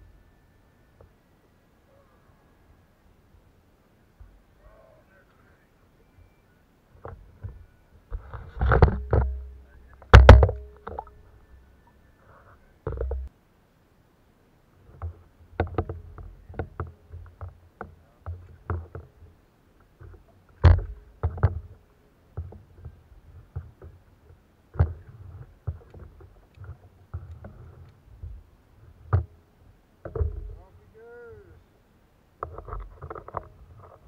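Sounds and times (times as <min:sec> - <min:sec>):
knocks on a kayak hull: 0:10.1 - 0:11.0.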